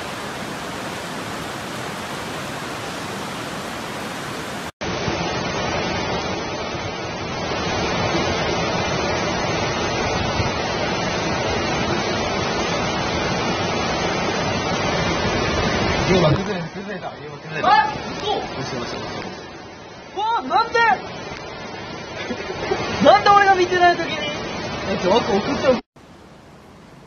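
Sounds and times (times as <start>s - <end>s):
floodwater rushing: 0.0s - 16.3s
swollen river rushing: 0.0s - 16.3s, 17.6s - 27.0s.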